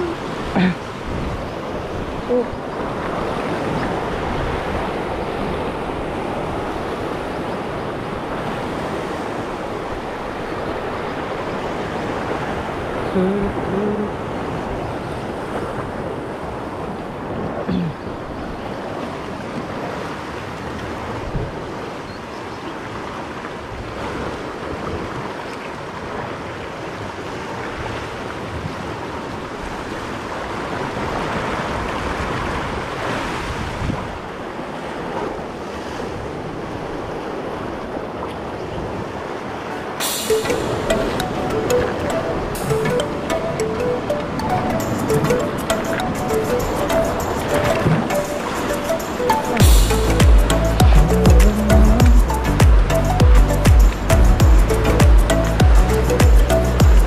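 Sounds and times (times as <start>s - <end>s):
sea surf breaking over rocks: 0.0s - 22.0s, 22.8s - 57.0s
short low tones: 49.6s - 57.0s.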